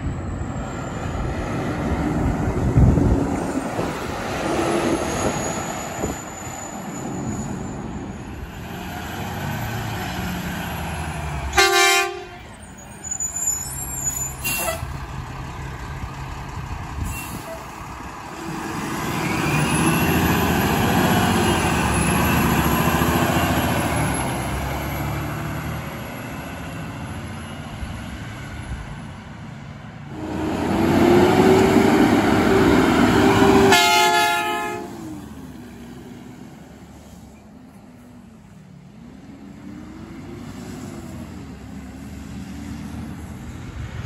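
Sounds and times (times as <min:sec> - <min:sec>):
truck passing: 0:00.0 - 0:44.0
air horn blast: 0:11.5 - 0:12.5, 0:33.2 - 0:35.1
diesel truck engine revving: 0:12.4 - 0:28.4, 0:30.1 - 0:37.1.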